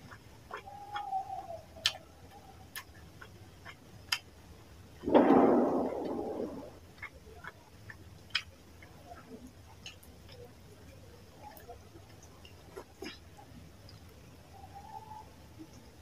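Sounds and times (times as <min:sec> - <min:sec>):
fingers mashing rice squelch: 0:00.0 - 0:04.7, 0:06.0 - 0:10.6
mouth chewing wetly: 0:00.0 - 0:14.7.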